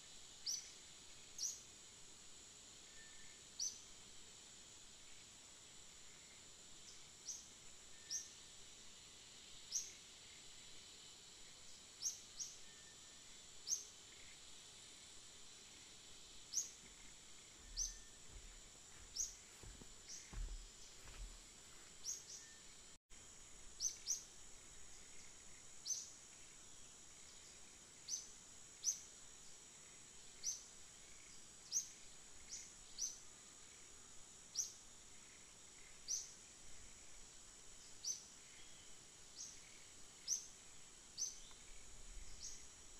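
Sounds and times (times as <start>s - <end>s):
high-pitched insect drone: 2.7s - 4.2s, 4.9s - 21.4s.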